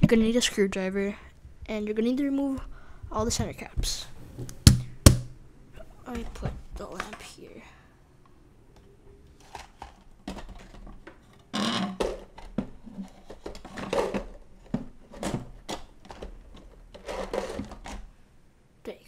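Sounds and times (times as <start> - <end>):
scraping and rubbing: 9.3 - 18.1.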